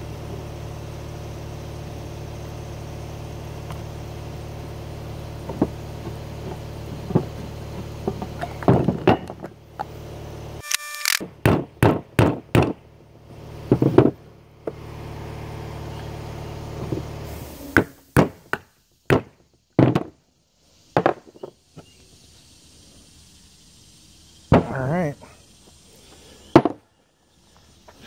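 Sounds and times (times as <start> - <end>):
steady low hum: 12.4 - 28.0.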